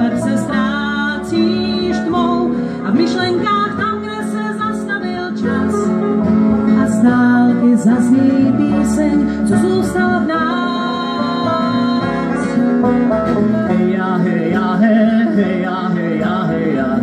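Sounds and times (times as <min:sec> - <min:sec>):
woman singing: 0:00.0 - 0:12.8
acoustic string band playing: 0:00.0 - 0:17.0.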